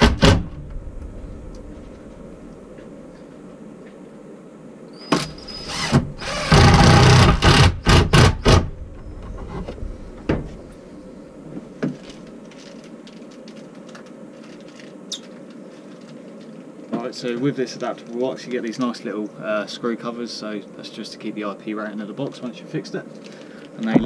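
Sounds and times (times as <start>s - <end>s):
cordless drill driving screw: 5.2s - 8.6s.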